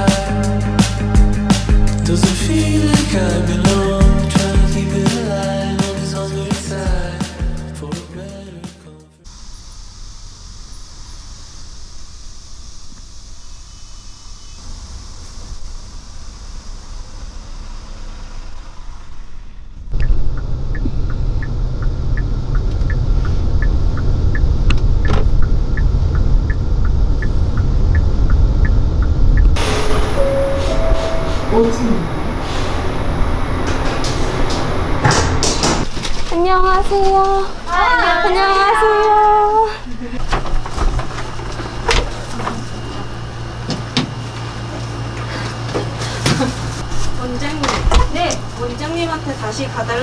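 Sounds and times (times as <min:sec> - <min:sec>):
steady low hum: 0:09.3 - 0:36.4
car road rumble: 0:14.5 - 0:36.3
turn signal ticking: 0:19.9 - 0:29.6.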